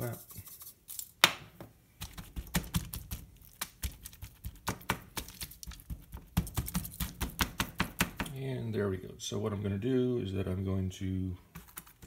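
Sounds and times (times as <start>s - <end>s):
hands slapping raw meat: 1.2s - 8.3s
foil crinkling: 2.4s - 7.2s.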